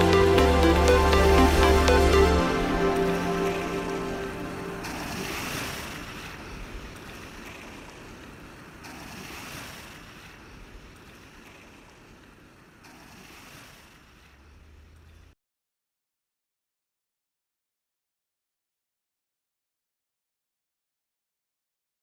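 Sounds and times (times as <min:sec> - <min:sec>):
ocean waves surf: 0:00.0 - 0:15.3.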